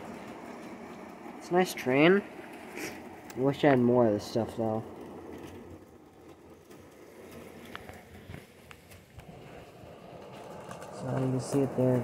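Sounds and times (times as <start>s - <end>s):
model train wheels rattling on track: 0.0s - 12.0s.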